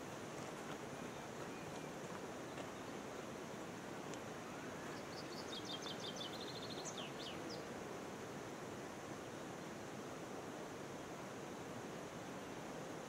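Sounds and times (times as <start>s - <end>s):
outdoor background hiss: 0.0s - 13.0s
small bird singing: 4.5s - 7.7s.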